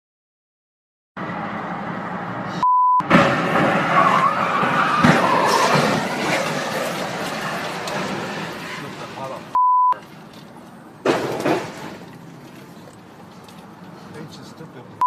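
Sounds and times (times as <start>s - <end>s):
metal scraping and skidding: 2.4s - 14.1s
censor bleep: 2.6s - 3.0s, 9.6s - 10.0s
truck crashing into sign: 3.0s - 9.5s, 11.0s - 12.1s.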